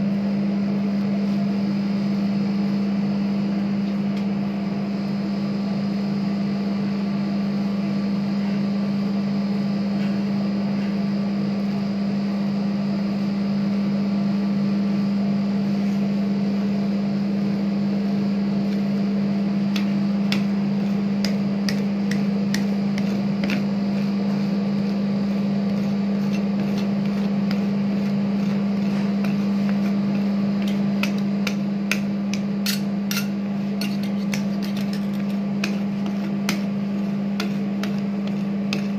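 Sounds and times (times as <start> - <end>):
refrigerated machine hum: 0.0 - 38.9
metal spatulas scraping: 21.7 - 31.2, 31.9 - 38.9.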